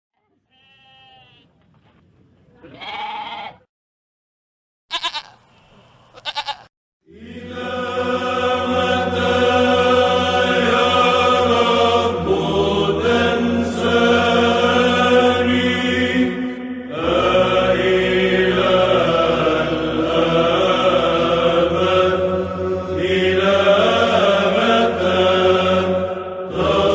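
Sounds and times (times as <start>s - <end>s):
goat bleating: 0.2s - 1.6s, 2.6s - 3.7s, 4.9s - 6.7s
chanting: 7.1s - 26.9s
low held drone: 7.1s - 26.9s.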